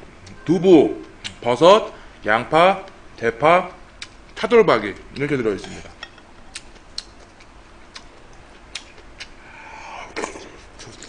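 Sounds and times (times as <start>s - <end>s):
mouth sound: 8.7s - 11.0s.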